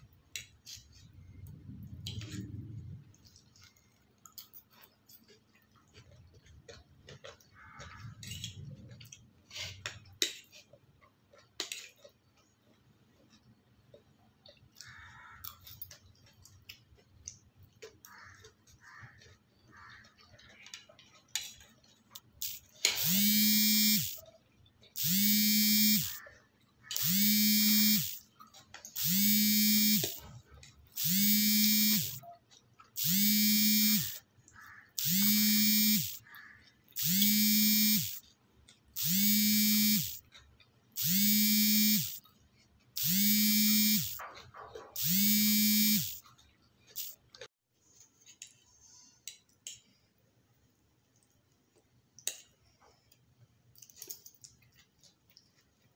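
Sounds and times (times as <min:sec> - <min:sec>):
pulsing electric buzz: 0:22.4 - 0:24.2, 0:25.0 - 0:26.2, 0:27.0 - 0:28.2, 0:29.0 - 0:30.2, 0:31.0 - 0:32.2, 0:33.0 - 0:34.2, 0:35.0 - 0:36.2, 0:37.0 - 0:38.2, 0:39.0 - 0:40.2, 0:41.0 - 0:42.2, 0:43.0 - 0:44.2, 0:45.0 - 0:46.2, 0:47.0 - 0:47.2.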